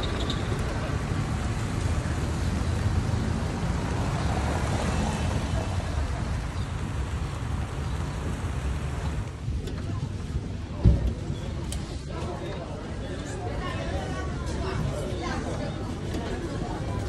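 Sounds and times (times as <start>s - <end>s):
tyres hissing on street: 0.0s - 9.4s.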